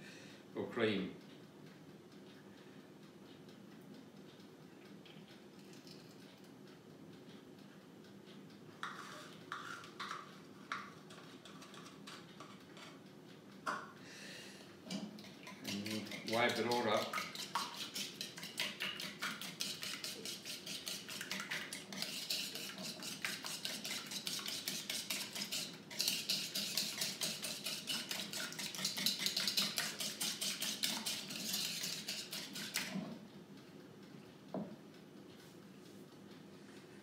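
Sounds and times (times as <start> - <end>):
whisk clicking against bowl: 8.8 - 12.9, 15.0 - 33.0.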